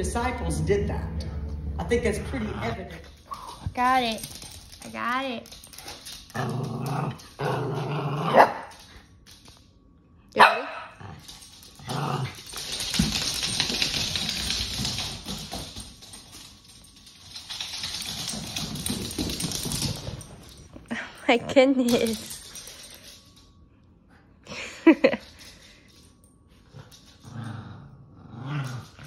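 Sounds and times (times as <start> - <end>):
small dogs barking: 10.4 - 11.0.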